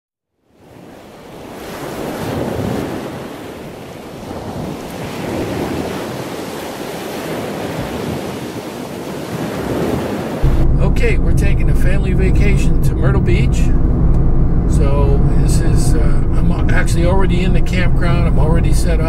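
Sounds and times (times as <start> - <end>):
ocean surf breaking on beach: 0.4 - 10.7
wind buffeting microphone: 0.7 - 19.0.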